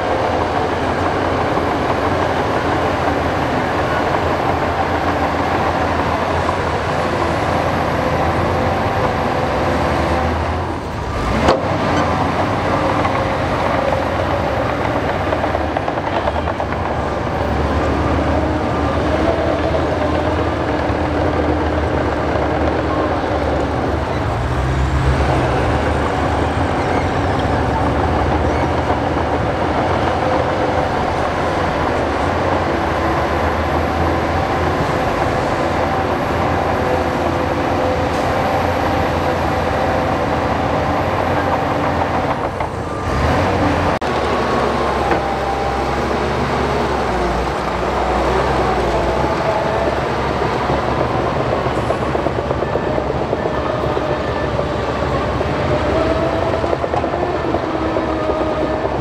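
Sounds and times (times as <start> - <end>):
heavy diesel machinery running: 0.0 - 59.0.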